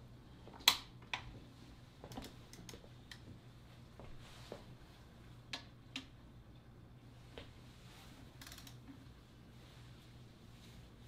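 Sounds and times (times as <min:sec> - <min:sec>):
torque wrench clicking: 0:08.4 - 0:08.8.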